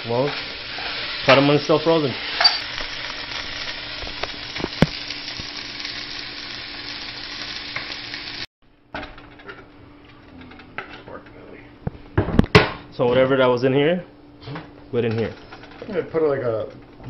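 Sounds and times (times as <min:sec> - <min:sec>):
chicken sizzling in butter: 0:00.0 - 0:08.5.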